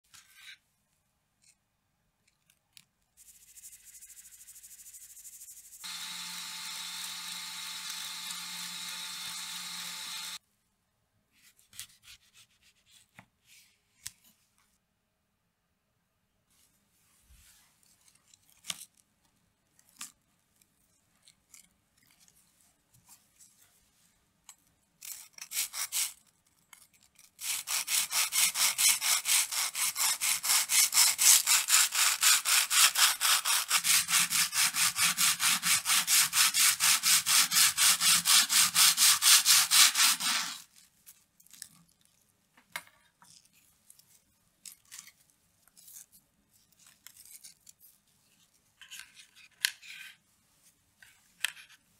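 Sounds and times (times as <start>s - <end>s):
knife sawing through waffle cone: 27.4s - 40.7s.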